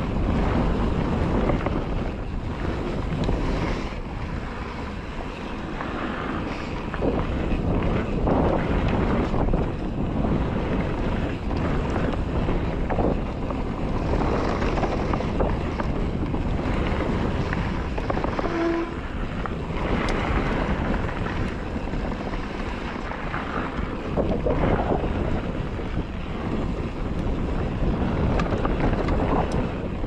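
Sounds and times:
bike rattling over rough ground: 0:00.0 - 0:30.0
wind buffeting microphone: 0:00.0 - 0:30.0.

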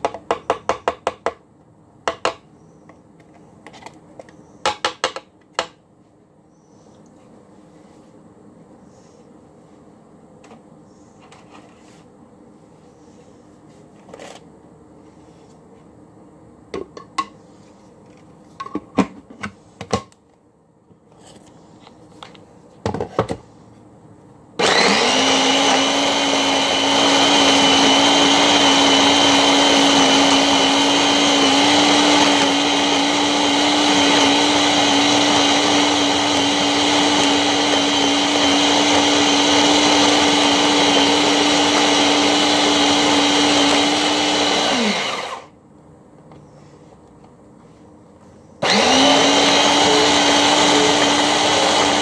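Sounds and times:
food processor motor humming: 0:24.6 - 0:45.5, 0:48.6 - 0:52.0.

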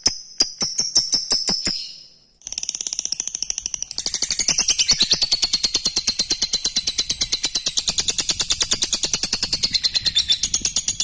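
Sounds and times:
lovebird rattling chatter: 0:02.4 - 0:11.0.

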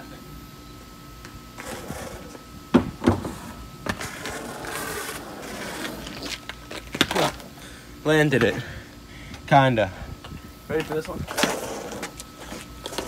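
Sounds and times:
small wheels rolling on concrete: 0:01.5 - 0:02.4, 0:03.1 - 0:07.6, 0:10.7 - 0:13.0.

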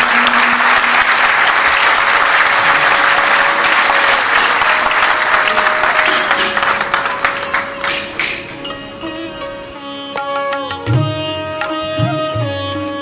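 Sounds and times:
audience applauding: 0:00.0 - 0:08.6.

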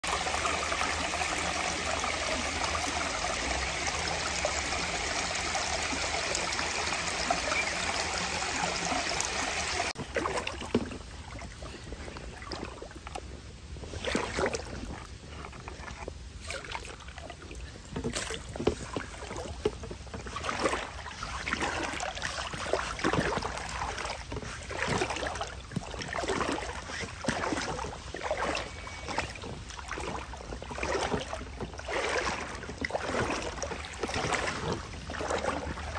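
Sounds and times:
river water rushing: 0:00.0 - 0:10.0
wading splashes in water: 0:00.0 - 0:35.9.

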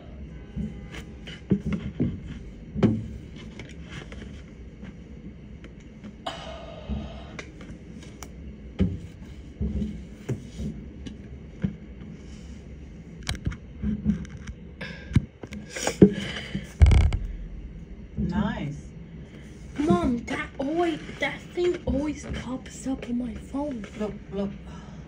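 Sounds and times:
distant fireworks bursting: 0:16.8 - 0:18.9.

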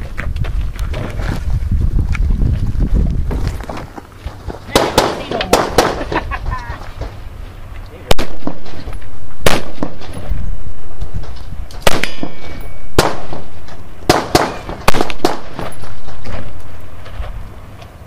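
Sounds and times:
gunshots with rolling echo: 0:04.8 - 0:06.0, 0:08.1 - 0:10.2, 0:11.8 - 0:15.7
steel plate ringing: 0:12.1 - 0:13.0.

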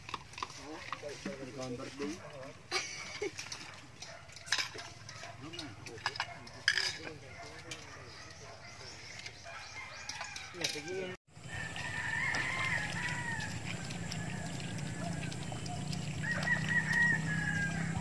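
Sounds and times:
rooster crowing: 0:09.4 - 0:15.5, 0:16.1 - 0:18.0.

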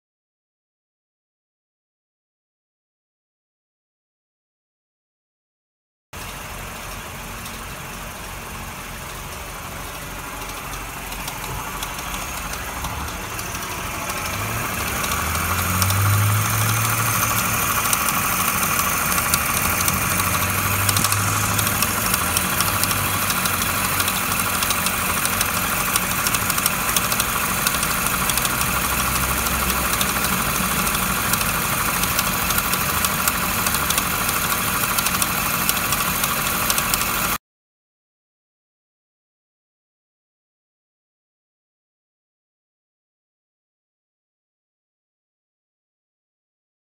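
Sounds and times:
low engine hum: 0:06.2 - 0:37.4
mechanical whirr of pump pulley: 0:09.0 - 0:37.4.

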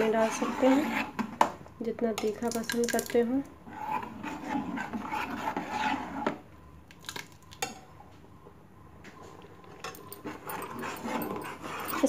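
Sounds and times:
metal ladle scraping a pot: 0:00.0 - 0:01.3, 0:03.6 - 0:06.4, 0:10.0 - 0:12.0.

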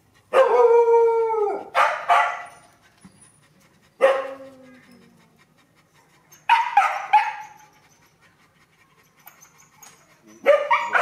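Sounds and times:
puppy yelping: 0:09.2 - 0:11.0.

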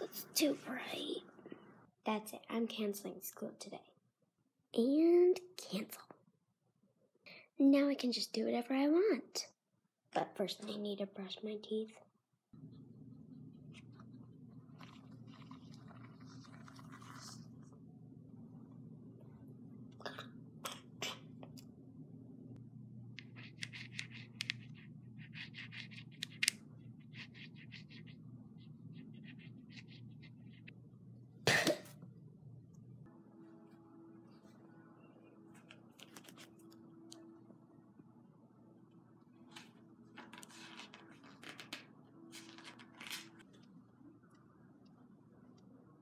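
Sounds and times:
low steady hum: 0:10.4 - 0:46.0
rustling and handling noises: 0:13.6 - 0:17.9, 0:35.4 - 0:37.3, 0:39.4 - 0:43.7
toothbrush scrubbing: 0:14.8 - 0:17.6, 0:23.2 - 0:28.2.

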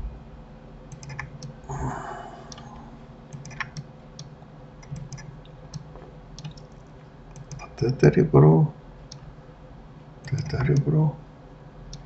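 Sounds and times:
mouse and keyboard clicking: 0:00.9 - 0:01.5, 0:03.3 - 0:07.7, 0:10.2 - 0:10.9.

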